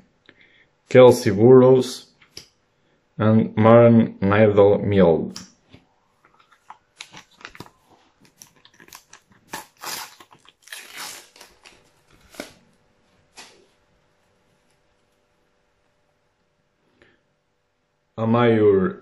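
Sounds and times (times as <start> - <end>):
packet being torn open: 6.4 - 12.6.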